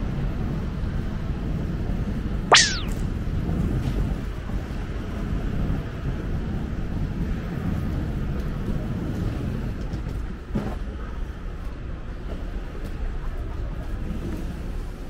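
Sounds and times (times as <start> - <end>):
brief knock: 2.5 - 3.0.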